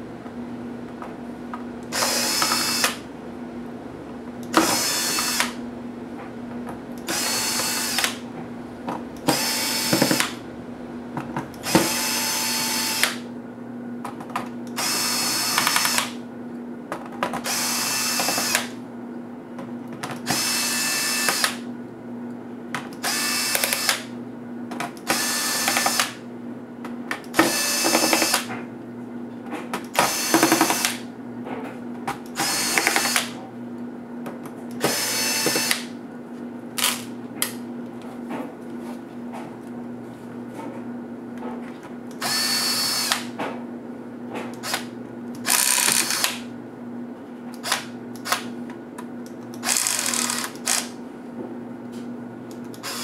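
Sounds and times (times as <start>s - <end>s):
steady low hum: 0.0s - 53.0s
electric screwdriver whirring: 1.9s - 3.0s, 4.5s - 5.6s, 7.1s - 8.2s, 9.3s - 10.4s, 11.6s - 13.2s, 14.8s - 16.2s, 17.4s - 18.8s, 20.2s - 21.6s, 23.0s - 24.1s, 25.0s - 26.2s, 27.4s - 28.5s, 30.0s - 31.0s, 32.4s - 33.3s, 34.8s - 35.9s, 42.2s - 43.3s, 44.6s - 46.5s, 47.6s - 48.5s, 49.6s - 51.0s, 52.7s - 53.0s.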